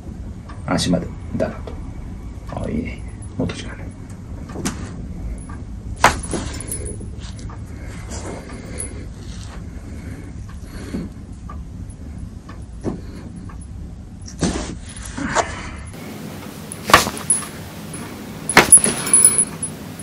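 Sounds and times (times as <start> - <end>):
rustling of hands and bedding: 4.6 - 11.3, 16.0 - 20.0.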